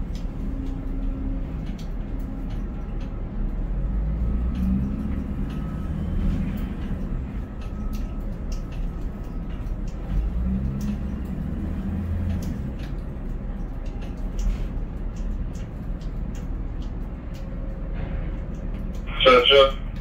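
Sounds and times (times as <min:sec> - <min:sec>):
crane machinery rumble: 0:00.0 - 0:20.0
light clicks: 0:04.4 - 0:19.1.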